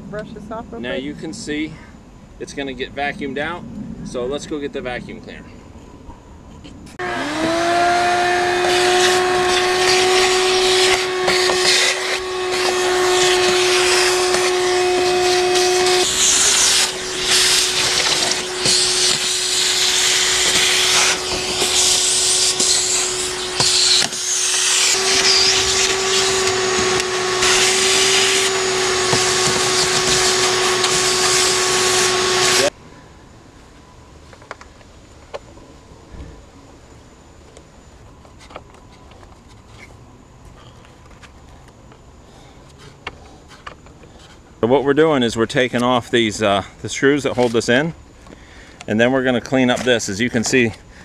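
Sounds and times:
air rushing through vacuum hose: 7.0s - 32.8s
vacuum cleaner running: 7.0s - 32.8s.

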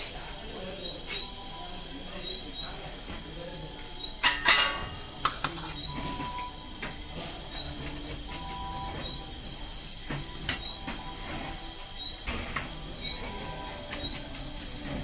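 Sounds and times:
mechanical hum: 0.0s - 15.0s
sharp clink: 4.2s - 5.6s.

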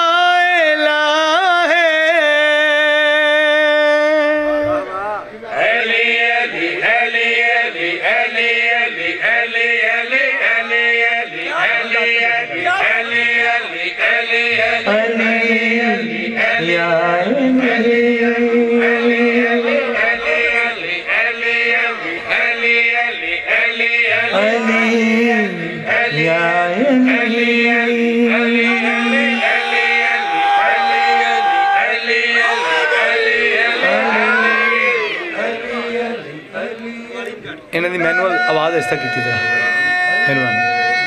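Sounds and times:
man chanting: 10.0s - 31.4s, 33.8s - 35.1s, 36.9s - 41.0s.

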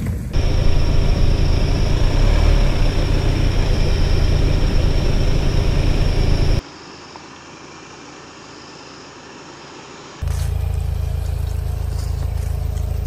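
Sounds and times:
engine low rumble: 0.2s - 6.6s, 10.2s - 13.0s.

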